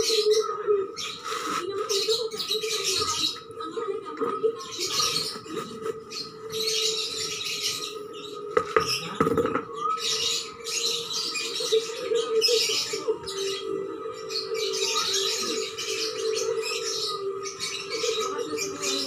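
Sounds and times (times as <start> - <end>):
birds chirping: 0.0 - 19.0
potting soil rustling and scraping: 1.0 - 3.3.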